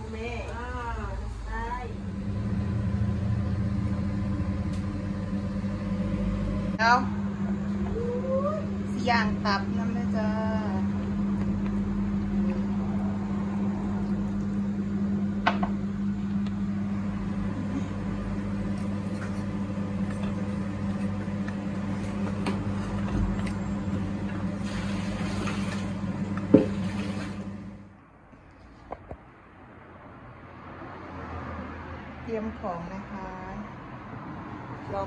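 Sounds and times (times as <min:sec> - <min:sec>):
appliance motor hum: 0:00.0 - 0:28.0.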